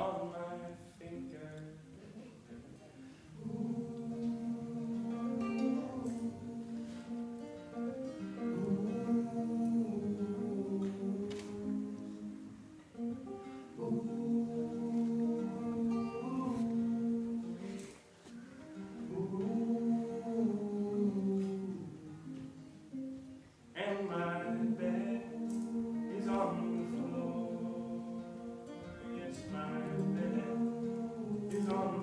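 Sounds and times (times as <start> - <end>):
acoustic guitar: 0.0 - 32.0
men singing in harmony: 3.3 - 7.4, 8.4 - 12.6, 13.6 - 18.1, 19.0 - 22.6, 23.8 - 32.0.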